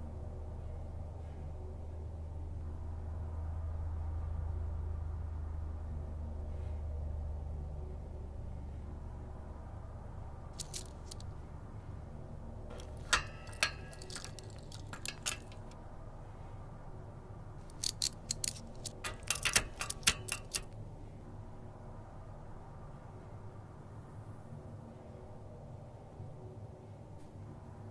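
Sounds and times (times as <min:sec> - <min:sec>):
low steady hum: 0:00.0 - 0:27.9
handcuffs clicking and rattling: 0:10.6 - 0:11.3, 0:12.8 - 0:15.8, 0:17.7 - 0:20.7.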